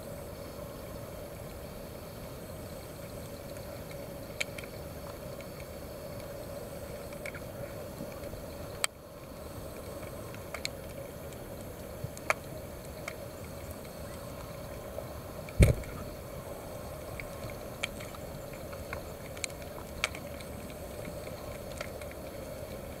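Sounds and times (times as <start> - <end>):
underwater steady hum: 0.0 - 23.0
loud low thump: 15.6 - 16.0.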